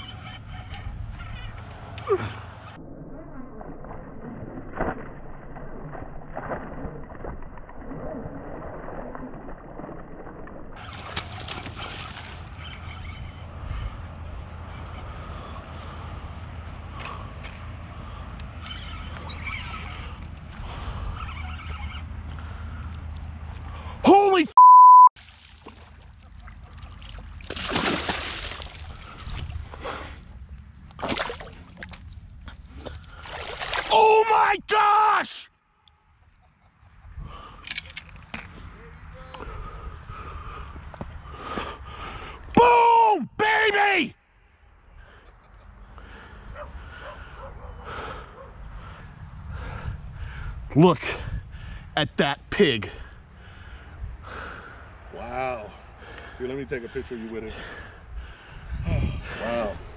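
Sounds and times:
fish splashing in water: 0:04.7 - 0:12.9, 0:25.2 - 0:29.6, 0:32.9 - 0:33.9.

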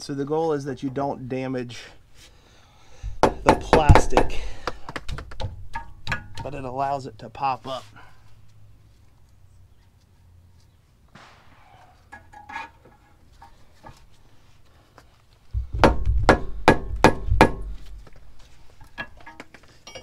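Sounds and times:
tools clinking on metal: 0:18.8 - 0:20.0.

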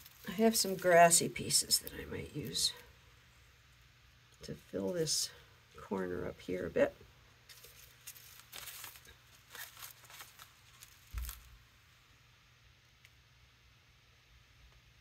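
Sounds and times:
dry twigs and grass rustling: 0:00.0 - 0:02.8, 0:07.5 - 0:11.6.

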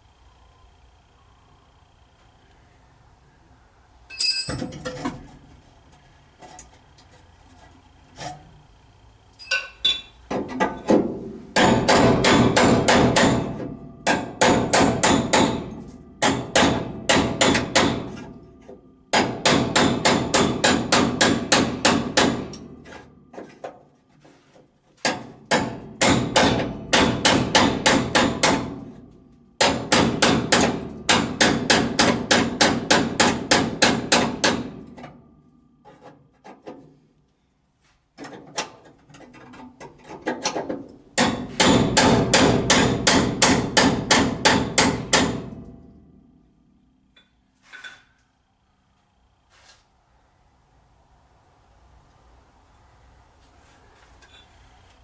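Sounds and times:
hammer blows on sheet metal: 0:10.9 - 0:18.4, 0:19.1 - 0:23.0, 0:25.0 - 0:35.0, 0:41.2 - 0:46.4.

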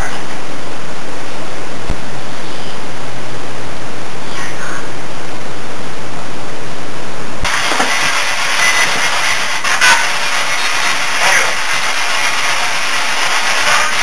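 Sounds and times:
amplified recorder hiss: 0:07.4 - 0:14.0.

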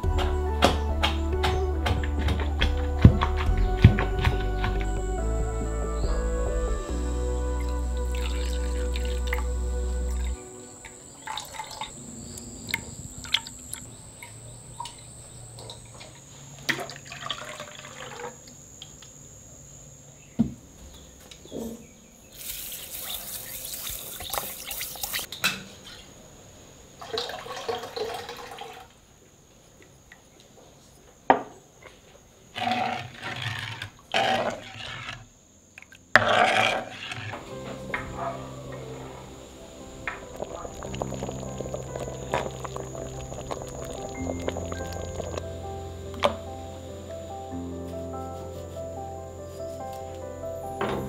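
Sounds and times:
faint high-pitched tone: 0:03.1 - 0:18.7, 0:37.4 - 0:47.9
sugar hissing in hot syrup: 0:22.3 - 0:25.3, 0:37.2 - 0:45.8
sizzling and stirring: 0:22.3 - 0:26.1, 0:32.6 - 0:35.3, 0:36.1 - 0:50.2
liquid dripping: 0:37.9 - 0:45.5.

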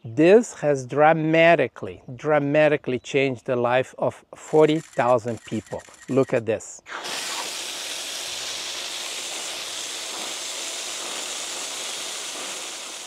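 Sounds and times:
water gushing from a tap: 0:07.0 - 0:13.0.

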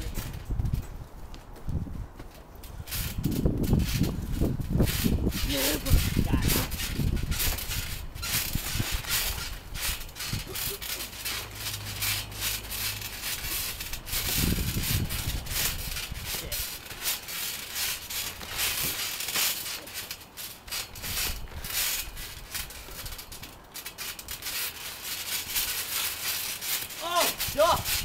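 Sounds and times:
rustling on microphone: 0:00.0 - 0:28.0.

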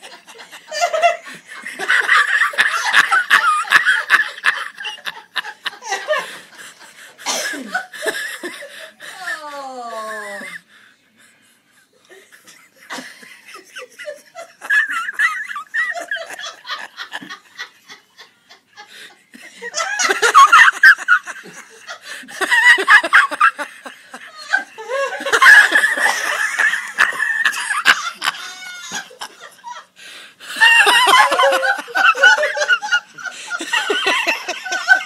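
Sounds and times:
people laughing: 0:00.0 - 0:35.0.

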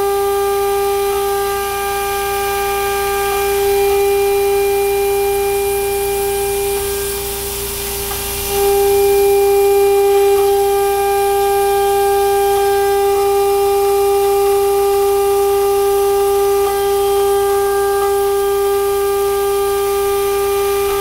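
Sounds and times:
coolant air hissing: 0:00.0 - 0:21.0
router spindle whining: 0:00.0 - 0:21.0.

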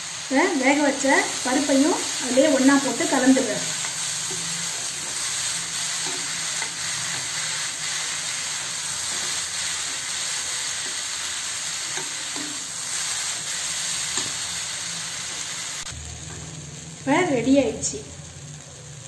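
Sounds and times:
lentils sizzling in oil: 0:00.0 - 0:19.0
steel spoon scraping a pan: 0:01.0 - 0:14.7.

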